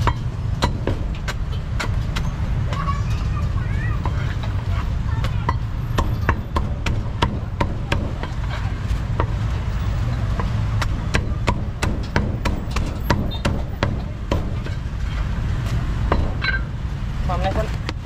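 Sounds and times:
cleaver chopping on wooden block: 0.0s - 2.8s, 5.2s - 8.4s, 10.3s - 14.7s.

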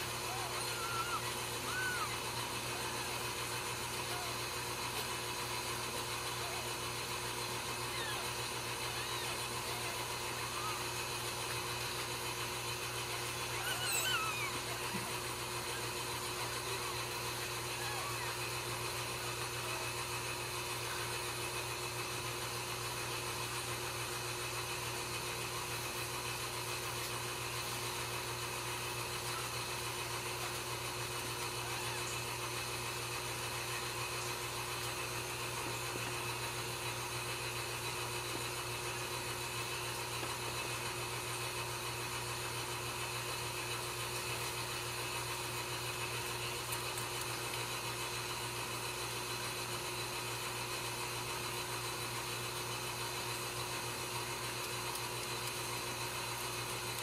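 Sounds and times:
kitten mewing squeak: 0.3s - 3.1s, 7.8s - 10.9s, 13.2s - 15.0s.

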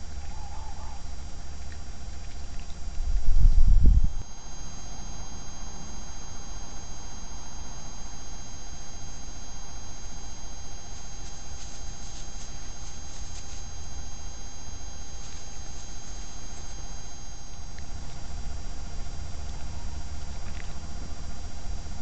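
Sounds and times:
electronic hiss and hum: 0.0s - 22.0s
high whine tones: 3.0s - 22.0s
animal rustling: 10.9s - 14.2s, 15.1s - 17.0s.

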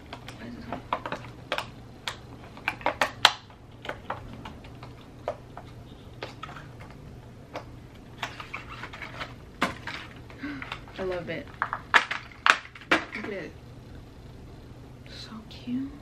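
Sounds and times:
packaging clicks and snaps: 0.0s - 10.9s.

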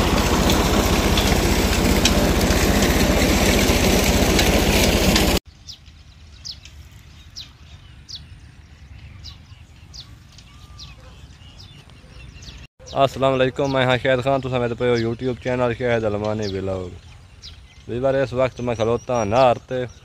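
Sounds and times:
water gushing from pipe: 0.0s - 5.4s
tractor engine running: 0.0s - 6.9s
bird chirping: 5.5s - 20.0s.

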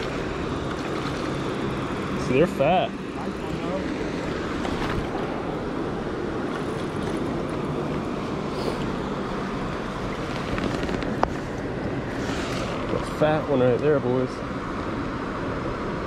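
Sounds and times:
river water rushing over rapids: 0.0s - 13.0s.

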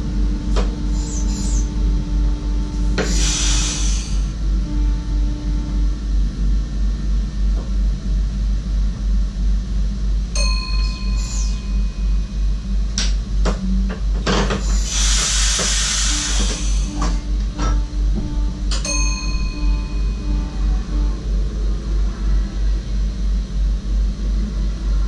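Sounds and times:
train cab running noise: 0.0s - 25.0s
chime-like ring: 10.4s - 12.3s, 18.8s - 20.6s
burst of hiss: 14.8s - 17.0s.

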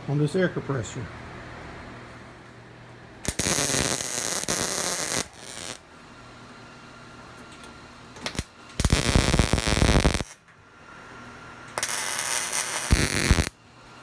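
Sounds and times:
arc welding crackling: 3.2s - 5.8s, 8.2s - 10.4s, 11.7s - 13.6s.

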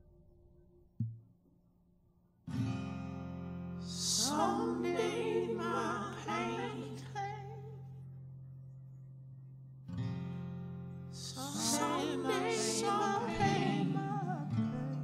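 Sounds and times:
person singing: 3.9s - 7.7s, 11.2s - 15.0s.

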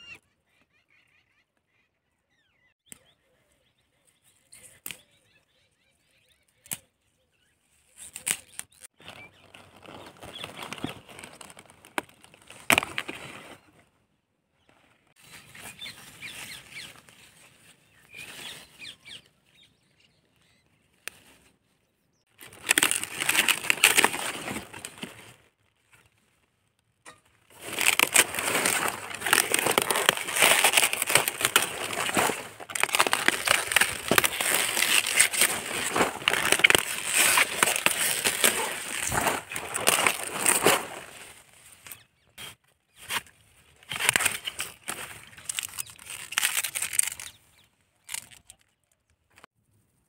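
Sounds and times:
leaves rustling and crackling: 7.9s - 13.7s, 22.3s - 26.5s, 27.4s - 47.4s, 48.0s - 48.7s
knife crunching through stem: 22.4s - 25.1s, 27.5s - 41.1s, 43.0s - 47.4s, 48.0s - 48.6s.

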